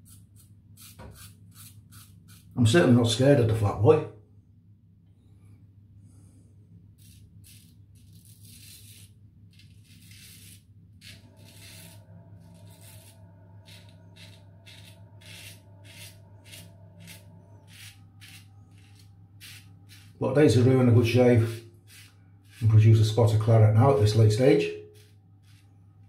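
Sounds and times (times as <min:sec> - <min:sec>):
razor scraping stubble: 0:00.0 - 0:02.6, 0:07.0 - 0:22.9, 0:24.9 - 0:25.7
low hum: 0:00.3 - 0:26.0.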